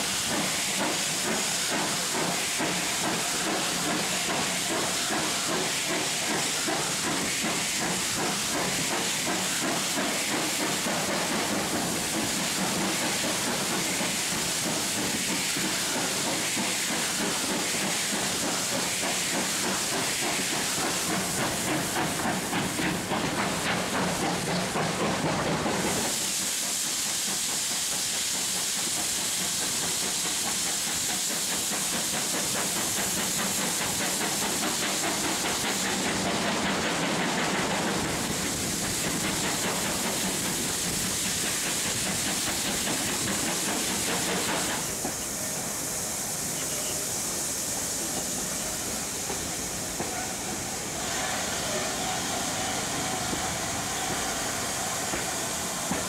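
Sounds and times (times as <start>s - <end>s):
rail noise: 0.0s - 56.0s
steam hissing: 0.0s - 56.0s
steam locomotive exhaust beats: 0.0s - 56.0s.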